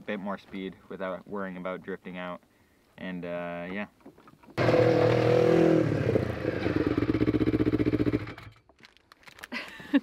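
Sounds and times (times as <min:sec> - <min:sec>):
snowmobile engine revving: 0:04.6 - 0:08.2.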